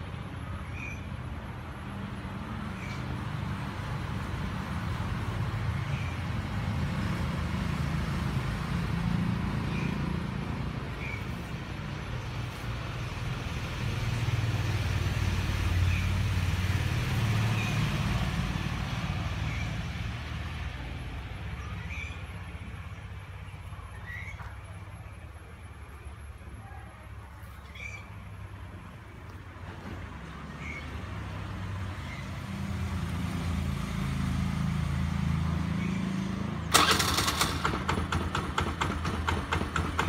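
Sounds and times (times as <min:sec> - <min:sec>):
scooter engine idling: 0:36.7 - 0:40.0.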